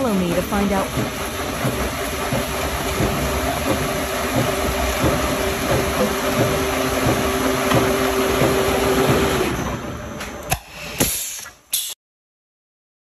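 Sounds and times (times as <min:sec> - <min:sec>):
rollers shaving wood clattering: 0:00.0 - 0:09.7
motor hum: 0:00.0 - 0:10.5.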